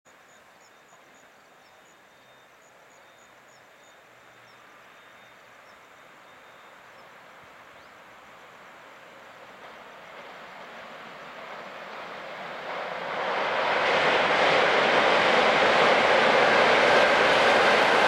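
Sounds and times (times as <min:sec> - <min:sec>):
freight train rumbling: 0:00.1 - 0:18.0.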